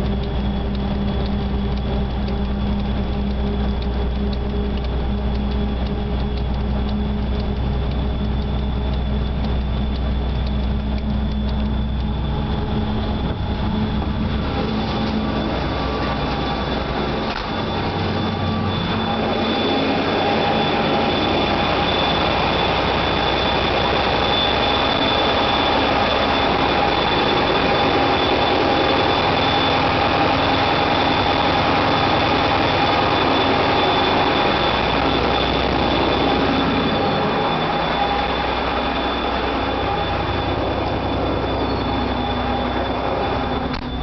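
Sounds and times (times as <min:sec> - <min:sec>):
locomotive engine and wheels: 0:00.0 - 0:44.0
thin high whine: 0:00.0 - 0:44.0.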